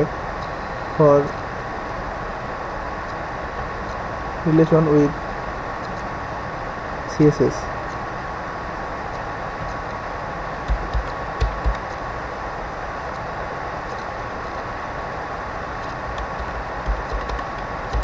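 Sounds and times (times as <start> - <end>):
steady hiss with thin whine: 0.0 - 18.0
keyboard keystrokes: 10.6 - 12.0, 15.8 - 18.0.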